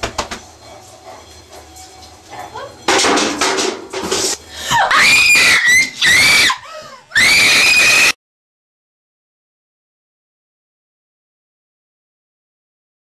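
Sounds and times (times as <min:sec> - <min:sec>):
woman screaming: 0:04.7 - 0:08.2.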